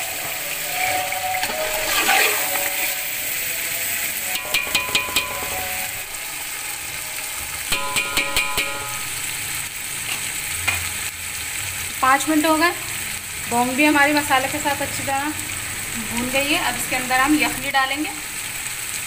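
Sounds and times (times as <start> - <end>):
meat sizzling in oil: 0.0 - 19.0
metal spoon scraping pot: 4.3 - 5.8
spoon knocking against pot: 4.4 - 5.7, 7.7 - 9.1.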